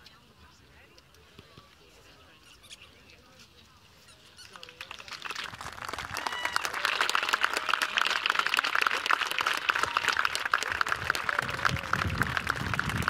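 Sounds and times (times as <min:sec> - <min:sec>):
crowd applauding: 0:04.6 - 0:13.0.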